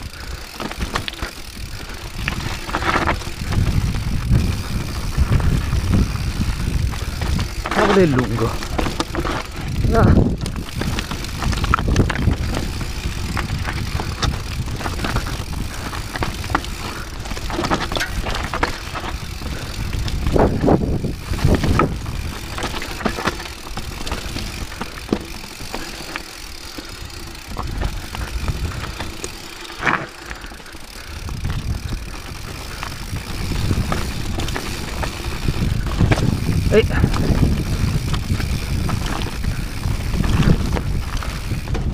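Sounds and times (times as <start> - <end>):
bike knocks and rattles: 0.0 - 41.9
tyres crunching over gravel: 0.0 - 41.9.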